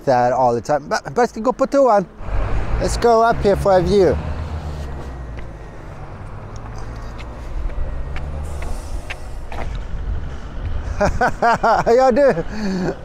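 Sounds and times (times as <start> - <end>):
vehicle engine running: 2.2 - 11.1
footsteps on concrete steps: 4.8 - 5.6, 6.2 - 10.0.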